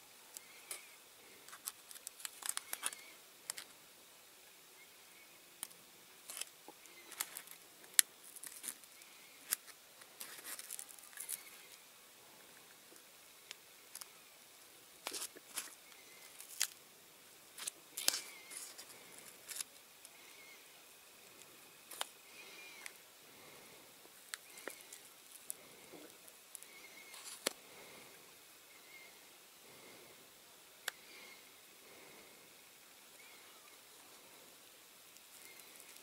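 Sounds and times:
masking tape peeling crackles: 0:00.3 - 0:03.8, 0:05.6 - 0:11.8, 0:12.9 - 0:14.2, 0:15.0 - 0:16.8, 0:17.5 - 0:20.6, 0:21.2 - 0:23.0, 0:24.1 - 0:27.6, 0:35.0 - 0:36.0.

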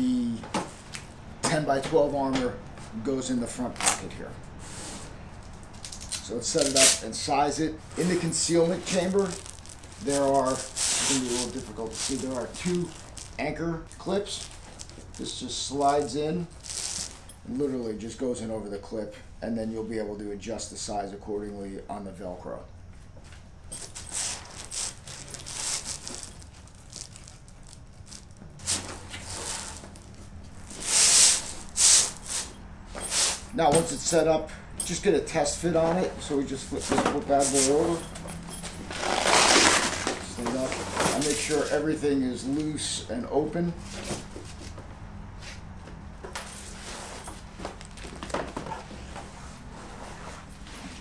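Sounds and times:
steady low hum: 0:00.0 - 0:51.0
backpack fabric rustling: 0:07.9 - 0:17.3, 0:23.7 - 0:34.1, 0:36.8 - 0:41.7.

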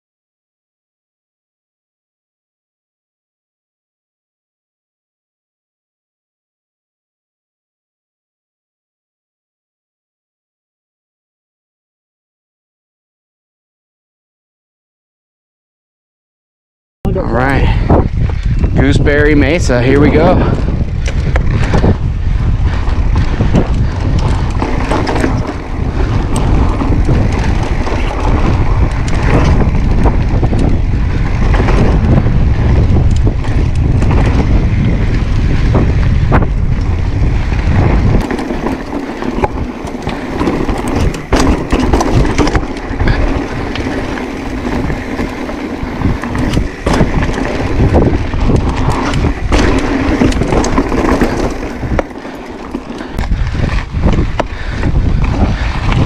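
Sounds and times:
bike rattling and knocking: 0:17.1 - 0:56.0
wind buffeting microphone: 0:17.1 - 0:56.0
tyres rolling on rock and dirt: 0:17.3 - 0:56.0.

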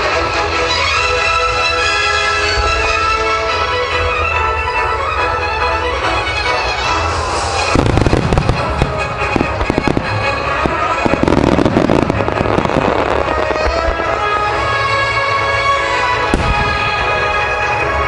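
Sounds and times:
music: 0:00.0 - 0:18.0
firework shells bursting: 0:07.5 - 0:14.4.

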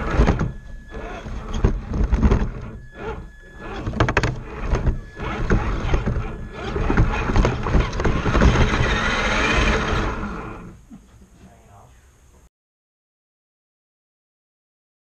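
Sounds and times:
chassis clicks and rattles: 0:00.0 - 0:10.6
electric motor and drivetrain: 0:00.0 - 0:10.9.

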